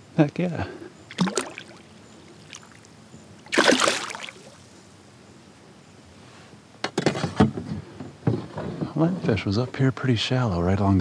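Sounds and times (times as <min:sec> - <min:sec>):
fish splashing in water: 0:01.1 - 0:04.6.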